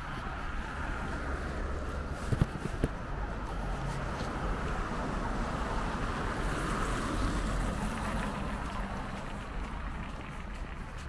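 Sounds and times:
car tyres and engines rushing: 0.0 - 11.0.

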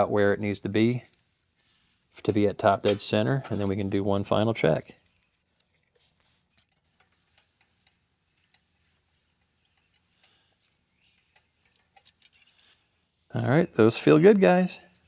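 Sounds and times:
light metal clicks and scrapes: 1.0 - 4.0, 4.8 - 13.2, 14.5 - 15.0.

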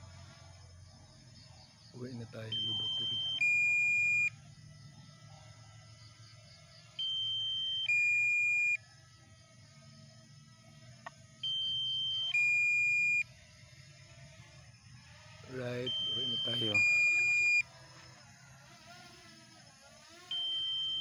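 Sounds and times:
drone two-note alarm beep: 2.6 - 4.3, 11.4 - 13.2, 15.8 - 17.6, 20.3 - 21.0.

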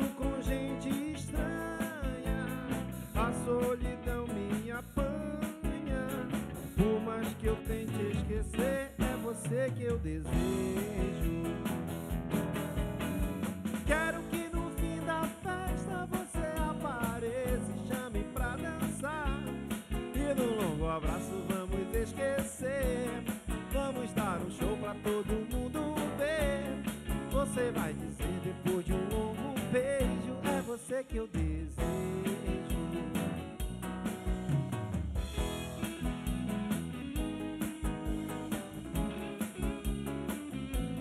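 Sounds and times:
live band playing: 0.0 - 41.0
drum kick: 10.3 - 22.2, 31.4 - 41.0.

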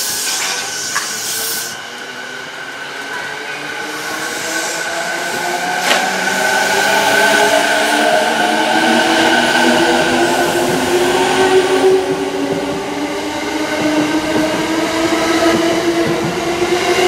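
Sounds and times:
air hissing: 0.0 - 1.8, 3.9 - 7.5.

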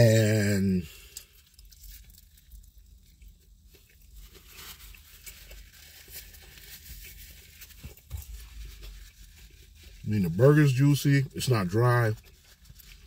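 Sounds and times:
faint chewing: 0.9 - 10.0, 12.1 - 13.0.

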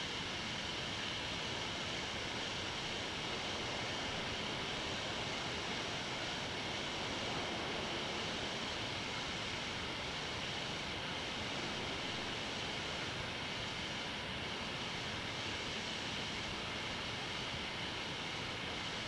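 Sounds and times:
steady microphone hiss: 0.0 - 19.0.

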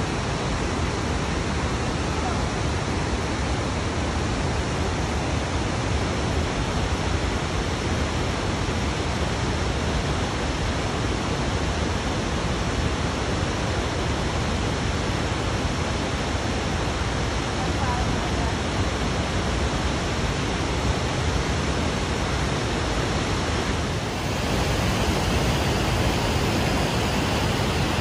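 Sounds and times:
waterfall rushing: 21.7 - 28.0.

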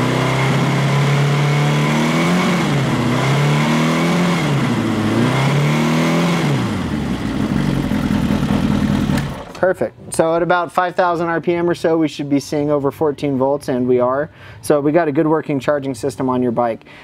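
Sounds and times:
motorcycle engine revving: 0.0 - 9.6.

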